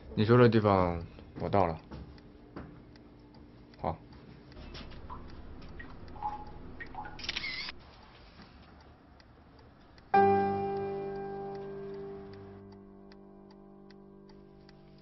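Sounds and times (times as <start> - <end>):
phone camera shutter click: 7.2 - 7.8
loud ringing music chord: 10.2 - 14.6.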